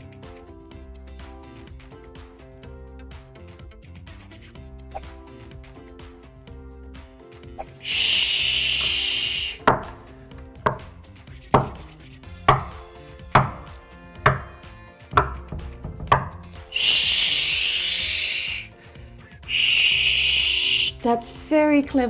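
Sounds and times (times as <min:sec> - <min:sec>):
person shushing: 0:07.8 - 0:09.6, 0:16.6 - 0:18.8, 0:19.4 - 0:21.0
knuckles knocking on door: 0:09.6 - 0:11.0, 0:11.6 - 0:11.8, 0:12.5 - 0:16.4.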